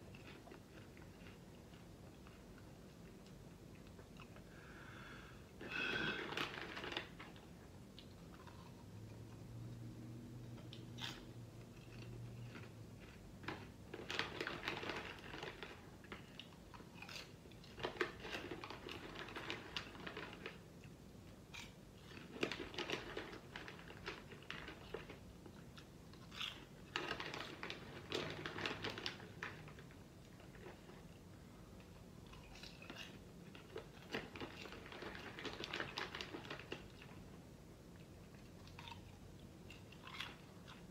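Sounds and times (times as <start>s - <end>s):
person chewing crunchy popcorn: 0.0s - 4.7s, 10.6s - 37.2s, 38.0s - 40.9s.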